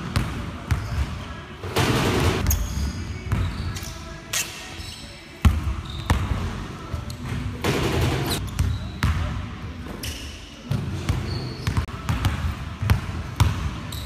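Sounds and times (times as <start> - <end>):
basketballs bouncing on gym floor: 0.0 - 3.6, 5.4 - 9.3, 10.7 - 14.0
shoe squeaks: 0.7 - 1.1, 2.4 - 7.5, 8.3 - 9.1, 9.9 - 11.9.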